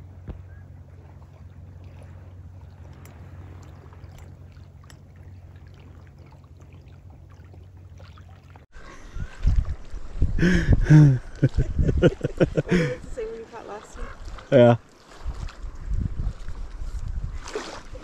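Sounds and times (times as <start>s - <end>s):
water lapping: 0.0s - 18.0s
gusty wind rumble: 8.8s - 14.4s, 15.2s - 18.0s.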